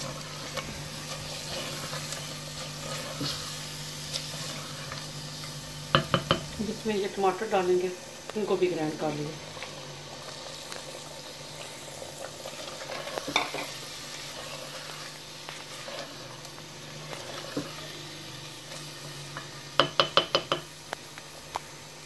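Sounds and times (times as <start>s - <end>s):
spatula stirring: 0.0s - 7.3s, 9.5s - 20.7s
curry sizzling: 0.0s - 22.0s.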